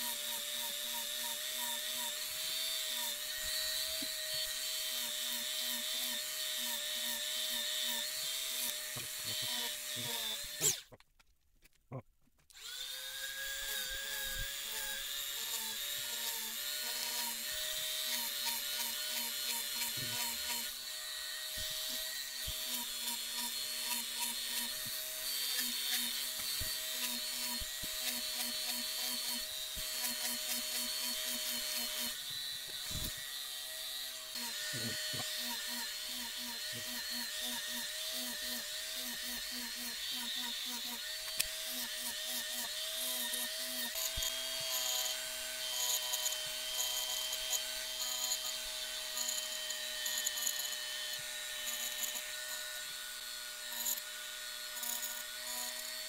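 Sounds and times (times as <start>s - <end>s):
rotary tool whining: 0.0s - 11.0s, 12.5s - 56.0s.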